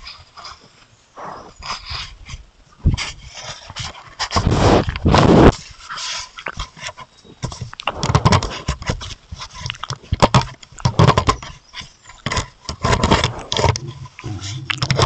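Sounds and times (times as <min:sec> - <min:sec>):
fur scraping against camera: 0:04.2 - 0:06.2, 0:12.9 - 0:14.6.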